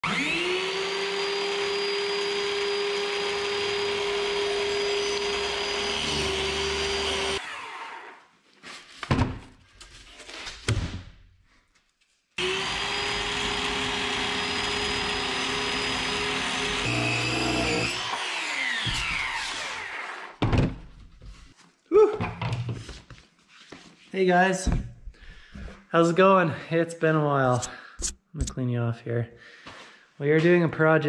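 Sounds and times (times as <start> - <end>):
power tool motor whine: 0.0 - 8.2, 12.4 - 20.3.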